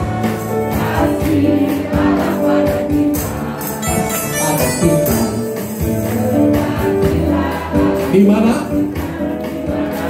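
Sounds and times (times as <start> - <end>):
congregation singing: 0.0 - 10.0
upbeat gospel music: 0.0 - 10.0.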